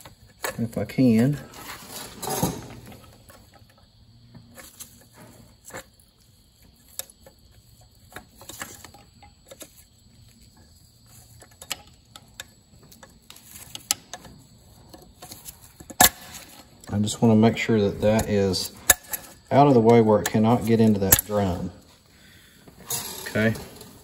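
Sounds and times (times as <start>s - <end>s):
pliers clicking and scraping metal: 6.6s - 16.9s, 18.2s - 21.6s.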